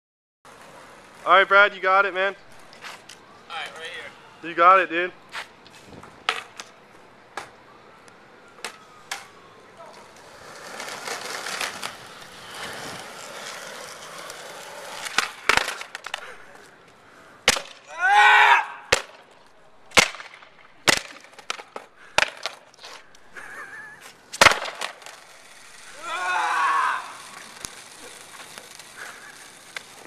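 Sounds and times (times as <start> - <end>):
skateboard wheels rolling on pavement: 0.5 - 30.0
skateboard deck clacking on concrete: 6.0 - 6.7, 9.9 - 16.3, 19.9 - 22.8, 24.4 - 25.8, 27.1 - 30.0
person crying out: 26.0 - 27.3.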